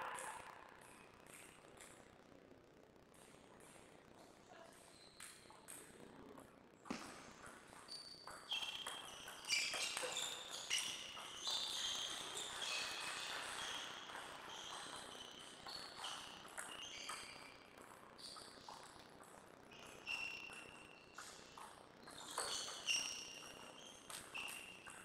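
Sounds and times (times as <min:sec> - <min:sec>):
shoes squeaking on floor: 0:07.8 - 0:17.6, 0:19.7 - 0:25.0.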